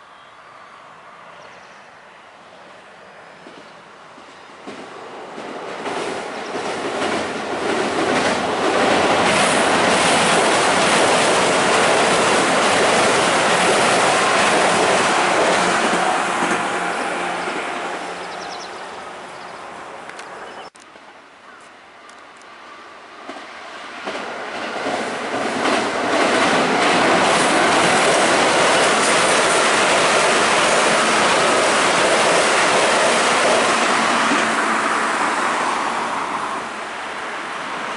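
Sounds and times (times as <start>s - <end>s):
train wheels rumbling on bridge: 3.4s - 18.7s, 23.2s - 37.9s.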